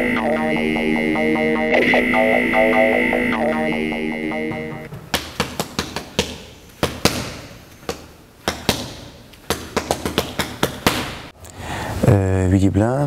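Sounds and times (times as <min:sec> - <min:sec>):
music: 0:00.0 - 0:04.9.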